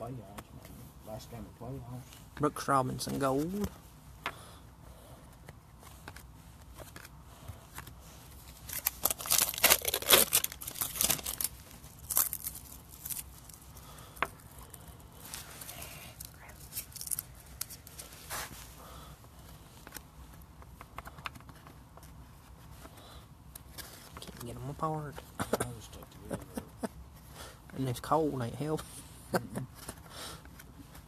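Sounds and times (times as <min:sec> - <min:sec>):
wrapper tearing and crinkling: 0:08.5 - 0:13.7, 0:15.6 - 0:18.0.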